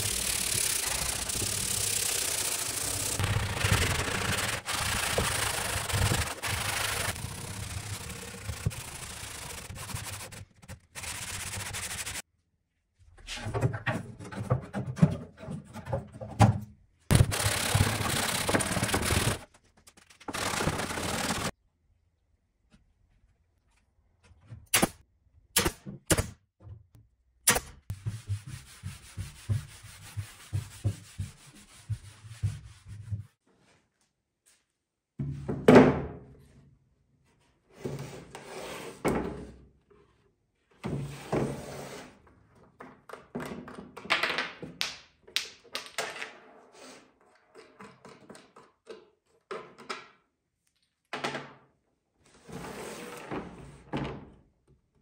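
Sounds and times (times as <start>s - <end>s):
scratchy noise: 0.0s - 12.2s
nail gun shots: 24.7s - 26.4s
hands rubbing and knocking on wood: 27.9s - 33.4s.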